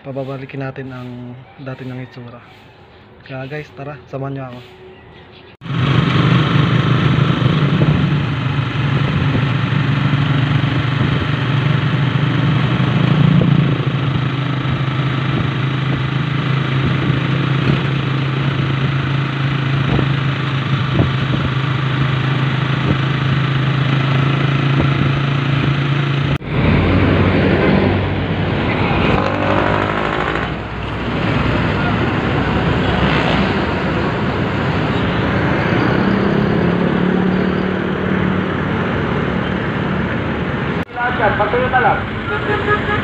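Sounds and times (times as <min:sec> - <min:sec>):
roadside traffic noise: 0:00.0 - 0:43.0
motorcycle engine running: 0:05.6 - 0:26.5.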